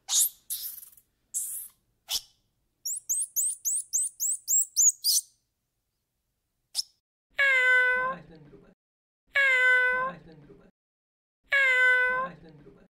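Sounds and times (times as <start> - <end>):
high-pitched chirps: 0.1 - 2.3, 2.9 - 5.3
small animal squeaking: 0.1 - 5.3
cat meowing: 7.4 - 8.1, 9.3 - 10.1, 11.5 - 12.3.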